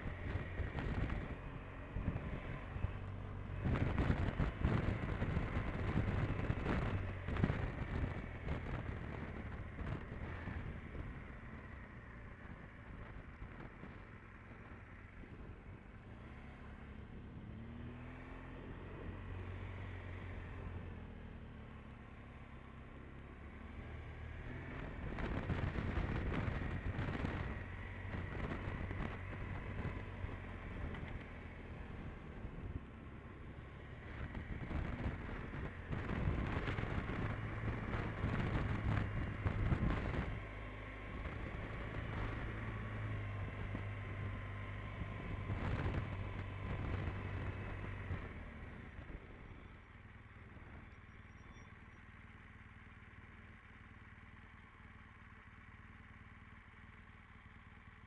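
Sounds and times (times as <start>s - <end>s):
motorcycle engine running: 0.0s - 17.5s, 21.7s - 58.0s
wind buffeting microphone: 3.6s - 11.4s, 34.1s - 40.5s, 41.2s - 49.3s.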